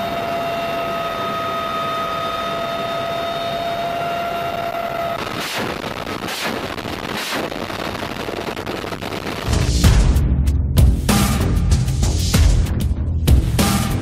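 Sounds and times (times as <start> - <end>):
steady noise with held tones: 0.0 - 9.6
minigun firing bursts: 5.2 - 9.3.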